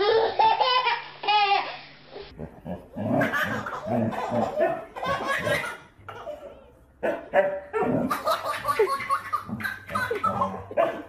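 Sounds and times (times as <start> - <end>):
baby laughing: 0.0 - 1.8, 3.1 - 6.7, 8.1 - 11.0.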